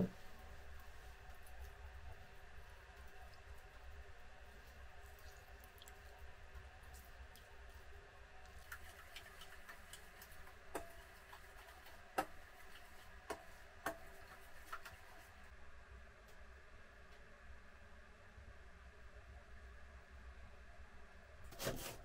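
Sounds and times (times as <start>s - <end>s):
spoon stirring thick sauce: 8.5s - 15.3s.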